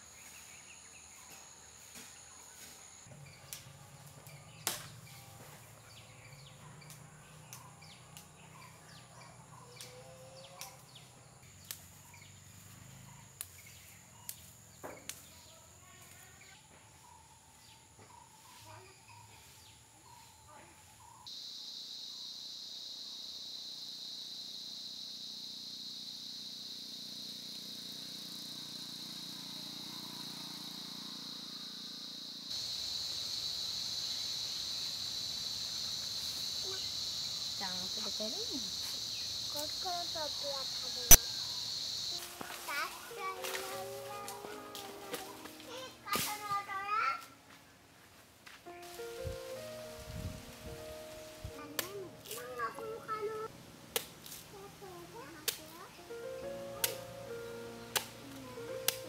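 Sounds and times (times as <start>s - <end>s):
insects droning: 0.0s - 59.0s
small clicks and snaps: 9.8s - 10.9s, 55.4s - 55.7s.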